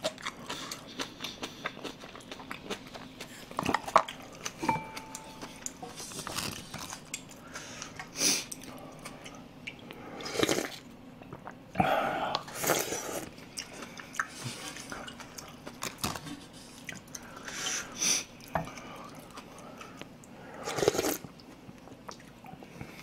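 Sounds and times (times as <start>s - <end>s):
wet chewing: 0.0s - 11.6s, 12.3s - 17.6s
slurping broth: 11.8s - 13.3s, 20.5s - 21.2s.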